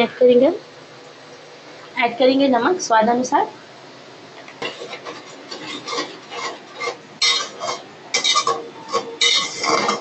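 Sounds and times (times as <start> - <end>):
spoon scraping metal pot: 4.6 - 10.0.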